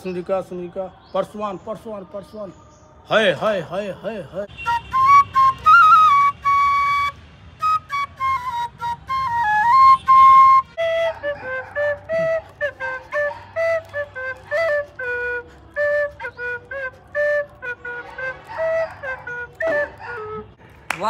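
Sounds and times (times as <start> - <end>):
nose flute melody: 4.4 - 20.6
bamboo flute high held notes: 4.6 - 20.2.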